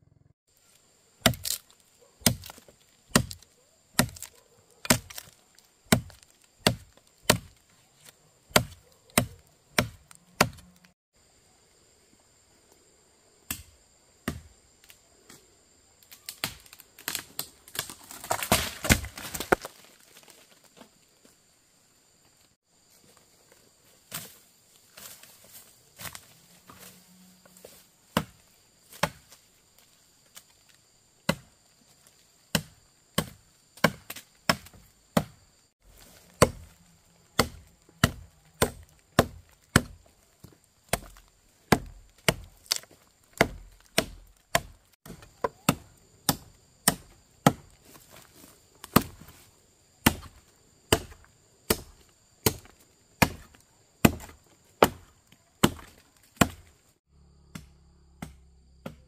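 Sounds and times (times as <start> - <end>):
axe chopping firewood: 1.2 - 10.9, 13.5 - 15.0, 16.3 - 20.3, 27.6 - 29.4, 31.2 - 31.6, 32.5 - 49.4, 50.0 - 56.7, 57.5 - 59.0.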